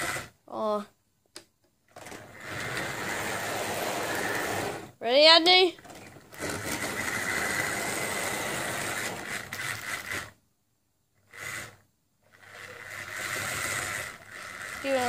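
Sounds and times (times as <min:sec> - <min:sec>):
model locomotive motor whine: 0:06.3 - 0:10.3, 0:11.3 - 0:15.0.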